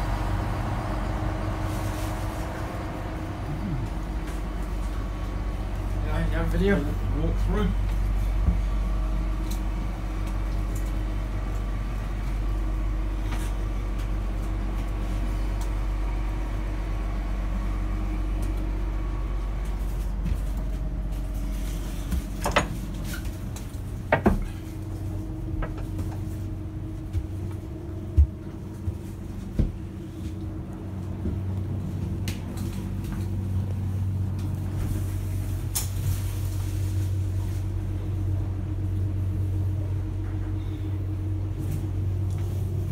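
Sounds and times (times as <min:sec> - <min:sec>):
low machinery hum: 0:00.0 - 0:42.9.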